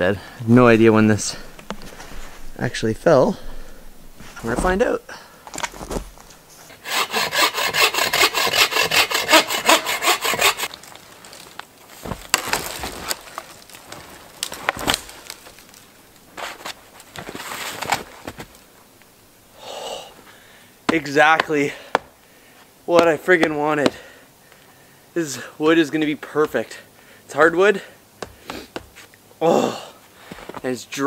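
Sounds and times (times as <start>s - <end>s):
hand saw cutting log: 6.7s - 10.7s.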